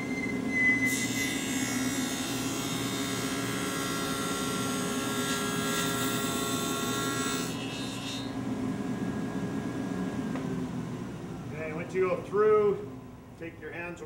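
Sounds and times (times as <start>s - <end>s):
table saw cutting board: 0.0s - 8.4s.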